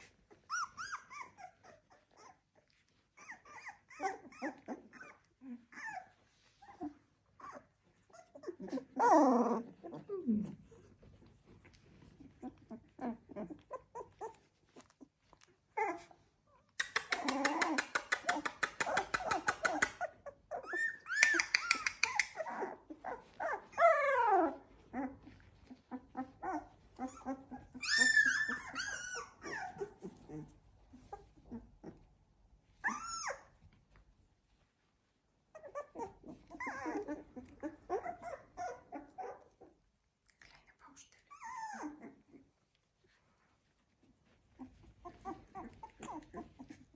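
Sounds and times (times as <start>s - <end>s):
puppies whimpering and squealing: 0.0s - 32.1s, 32.7s - 33.8s, 35.5s - 39.8s, 41.3s - 42.6s, 44.2s - 46.9s.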